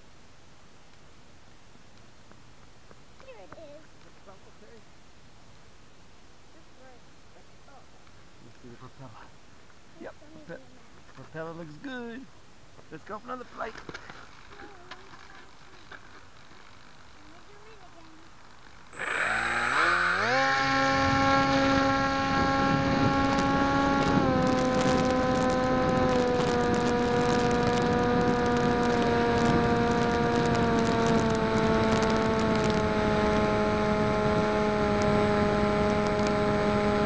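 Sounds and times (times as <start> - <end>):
crackling clicks: 1.9 - 4.3, 12.8 - 20.9, 23.0 - 33.5, 35.8 - 36.4
electric motor propeller whine: 18.9 - 37.0.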